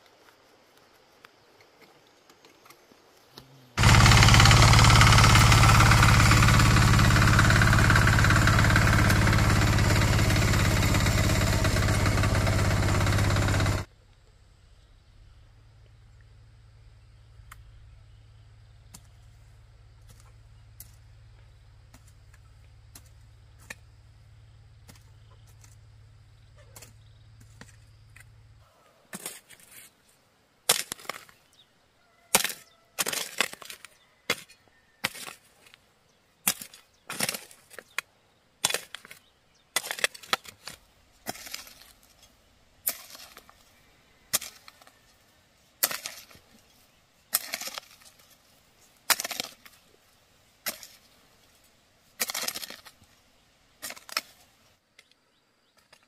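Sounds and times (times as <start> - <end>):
earth and pebbles rattling: 3.8 - 13.9, 38.6 - 45.2, 45.8 - 53.2, 53.8 - 54.8
hoe striking stony soil: 3.8 - 13.9, 18.9 - 19.3, 21.8 - 23.9, 24.8 - 25.9, 26.6 - 28.4, 29.1 - 30.0, 30.7 - 31.6, 32.3 - 35.8, 36.4 - 45.2, 45.8 - 53.2, 53.8 - 56.0.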